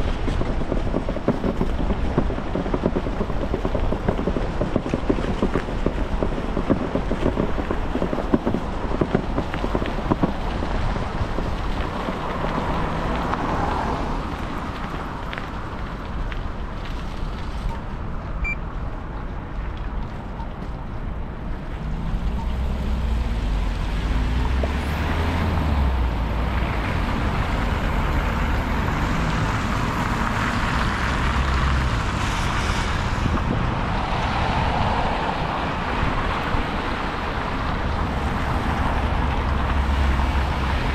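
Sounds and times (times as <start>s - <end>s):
road traffic: 0.0s - 40.9s
wind rumbling on microphone: 0.0s - 40.9s
motor vehicle engine: 21.4s - 40.9s.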